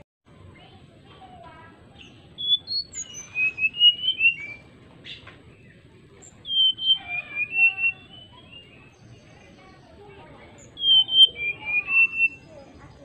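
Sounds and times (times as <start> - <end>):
bird singing whistled phrases: 2.0 - 5.2, 6.2 - 9.5, 10.5 - 13.0.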